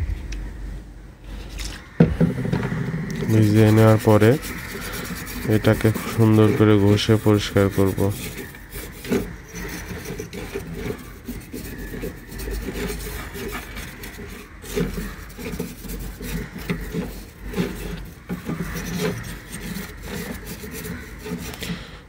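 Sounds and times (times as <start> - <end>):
low rumble: 0.0 - 1.2
brush scrubbing a circuit board: 3.2 - 21.7.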